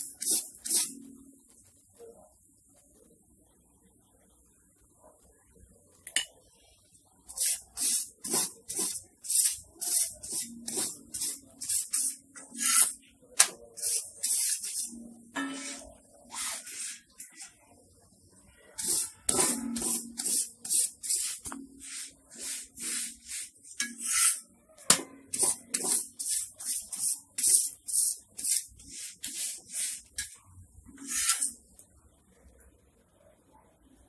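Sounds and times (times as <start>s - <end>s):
spatula rasping on iron griddle: 0.0s - 1.1s, 7.3s - 13.1s, 13.8s - 17.6s, 18.8s - 24.5s, 25.3s - 31.6s.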